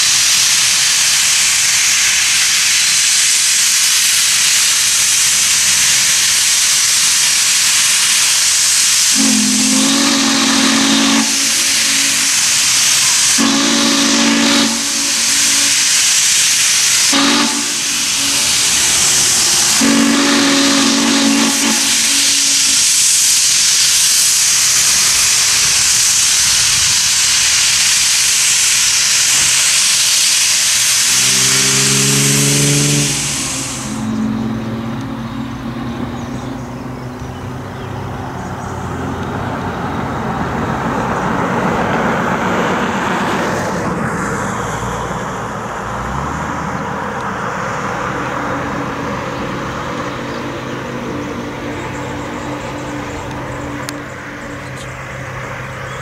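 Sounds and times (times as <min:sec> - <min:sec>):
steady loud hiss: 0:00.0 - 0:56.0
steam locomotive chime whistle: 0:09.0 - 0:22.8, 0:28.7 - 0:36.3.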